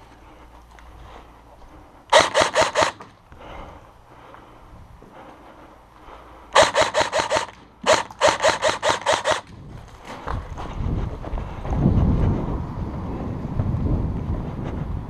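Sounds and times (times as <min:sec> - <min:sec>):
low rumbling noise: 0:00.0 - 0:08.6, 0:09.4 - 0:15.0
airsoft rifle full-auto bursts: 0:02.1 - 0:03.1, 0:06.6 - 0:09.5.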